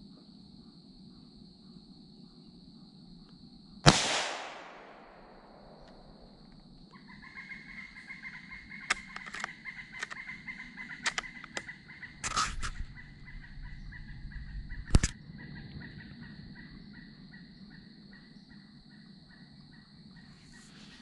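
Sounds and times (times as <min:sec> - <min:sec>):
gunshot with echo: 0:03.8 - 0:05.8
sharp clicks: 0:08.8 - 0:10.3, 0:11.0 - 0:12.9, 0:14.8 - 0:15.2.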